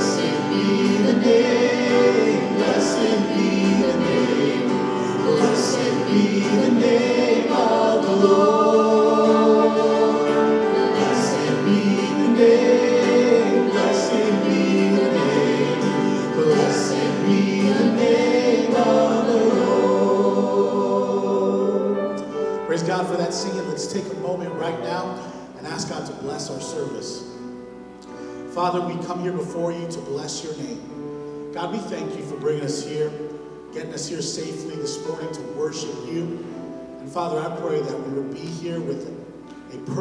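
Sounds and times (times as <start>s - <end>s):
group singing on held notes: 0.0s - 22.6s
acoustic guitar: 0.0s - 40.0s
piano: 0.0s - 40.0s.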